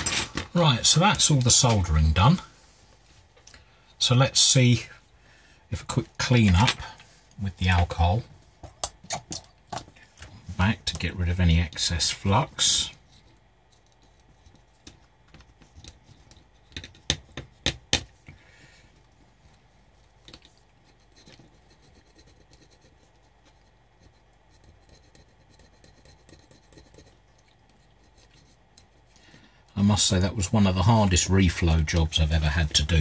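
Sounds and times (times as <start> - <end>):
cotton bud rubbing circuit board: 20.8 - 29.1.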